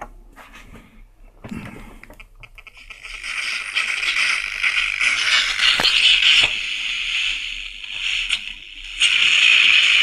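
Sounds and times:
crackles: 0:01.9 - 0:10.0
radio static hissing: 0:02.6 - 0:10.0.

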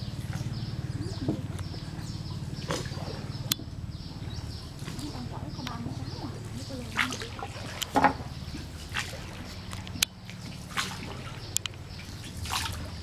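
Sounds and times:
oar strokes splashing in water: 0:00.0 - 0:03.8, 0:04.4 - 0:13.0
low steady hum: 0:00.0 - 0:13.0
sharp knocks on wooden boat: 0:07.8 - 0:08.3.

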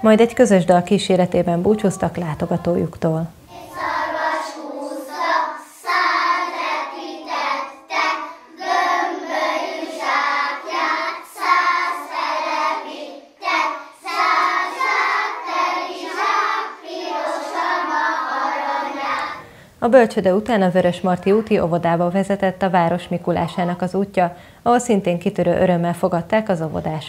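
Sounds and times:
children singing: 0:03.5 - 0:19.5.

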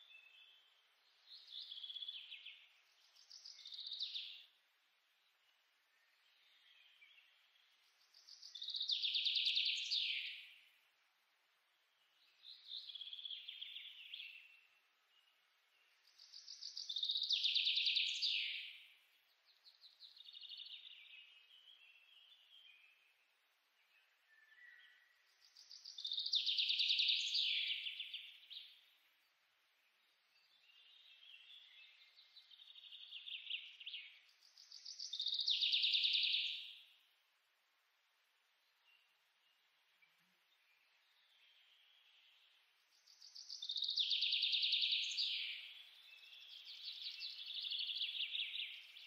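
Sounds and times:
songbird singing trilled phrases: 0:00.0 - 0:04.5, 0:06.3 - 0:10.7, 0:12.1 - 0:18.9, 0:23.9 - 0:28.9, 0:30.0 - 0:37.0, 0:40.5 - 0:49.0.

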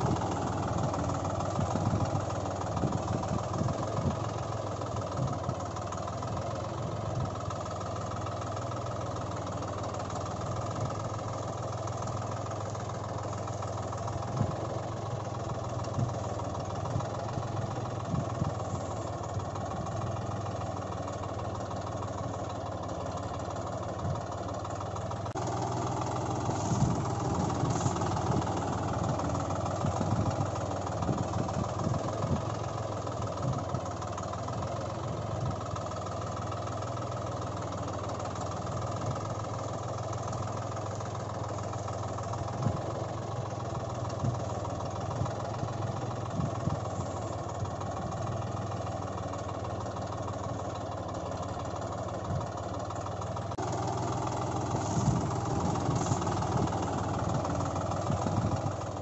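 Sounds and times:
tractor engine idling: 0:00.0 - 0:59.0.

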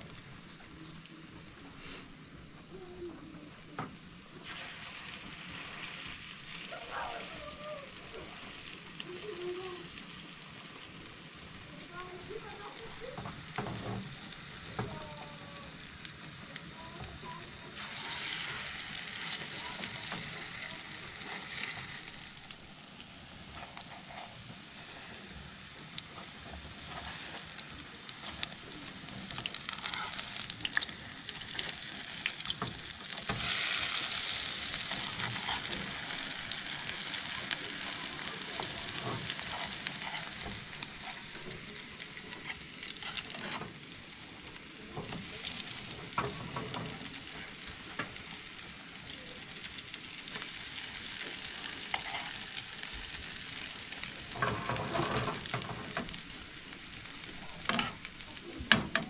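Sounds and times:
food sizzling in a pan: 0:00.0 - 0:59.0
utensil stirring and clicking on pan: 0:16.6 - 0:22.4, 0:25.8 - 0:43.8, 0:44.9 - 0:48.4, 0:50.3 - 0:56.4, 0:57.2 - 0:58.1.

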